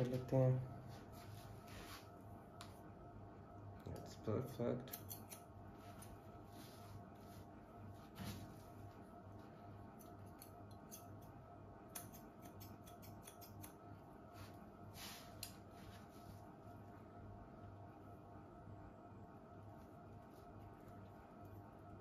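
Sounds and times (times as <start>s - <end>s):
faint steady hum: 0.0s - 22.0s
scissors snipping hair: 3.9s - 6.1s, 9.9s - 13.8s.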